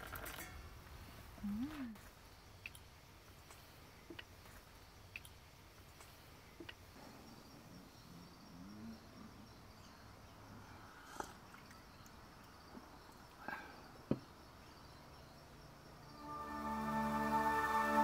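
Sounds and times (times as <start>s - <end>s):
music: 16.1s - 18.0s.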